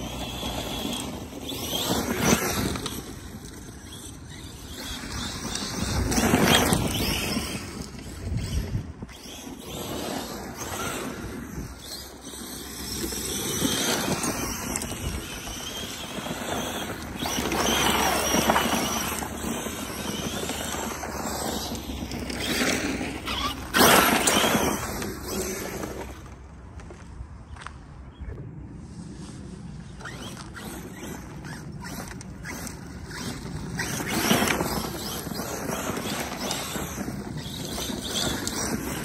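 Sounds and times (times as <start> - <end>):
electric motor whining: 0.0 - 26.3, 30.0 - 39.0
tyres spinning and spraying dirt: 0.0 - 27.1, 29.6 - 39.0.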